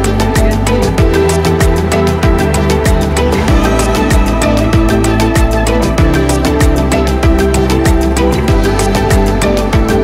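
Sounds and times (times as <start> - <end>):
background music with beat: 0.0 - 10.0
deep kick drum: 0.4 - 10.0.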